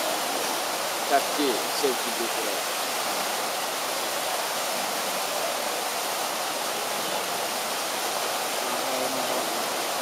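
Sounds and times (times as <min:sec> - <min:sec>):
water rushing: 0:00.0 - 0:10.0.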